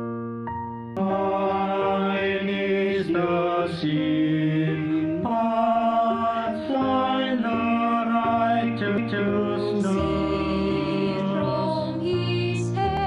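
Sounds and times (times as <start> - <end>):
men singing in harmony: 1.0 - 12.8.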